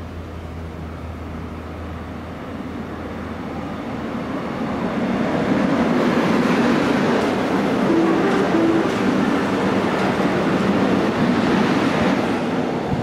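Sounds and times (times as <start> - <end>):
train passing through: 0.0 - 13.0.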